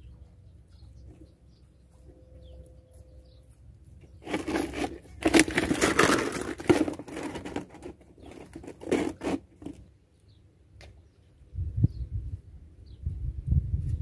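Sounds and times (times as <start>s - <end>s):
plastic bottle crinkling: 4.2s - 9.9s.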